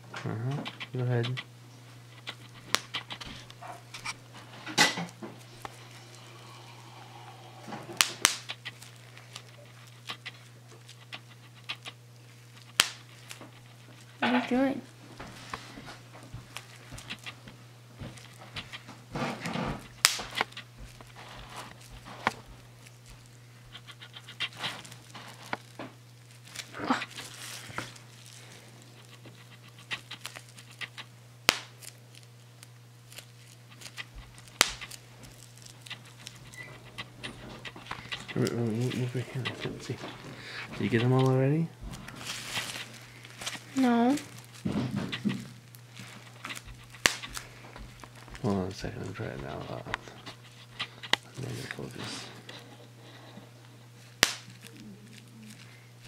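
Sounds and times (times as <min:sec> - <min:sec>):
faint low hum: 0:00.0 - 0:56.0
plastic crinkling: 0:02.0 - 0:56.0
bubble wrap popping: 0:07.8 - 0:15.6, 0:16.2 - 0:40.2, 0:40.8 - 0:50.1, 0:54.0 - 0:55.8.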